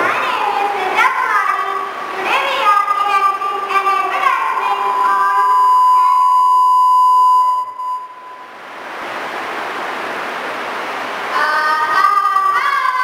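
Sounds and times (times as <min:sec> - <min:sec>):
child singing: 0:00.0 - 0:05.4, 0:11.3 - 0:13.0
steady hiss: 0:00.0 - 0:06.2, 0:07.7 - 0:13.0.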